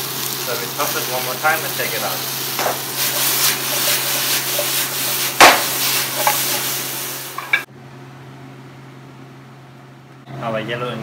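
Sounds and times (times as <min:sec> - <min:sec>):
peppers sizzling in frying pan: 0:00.0 - 0:07.7.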